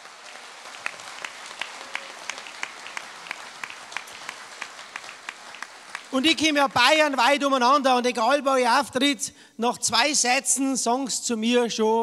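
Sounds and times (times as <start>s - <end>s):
audience applauding: 0.0s - 7.2s
regular rhythmic claps: 0.0s - 7.8s.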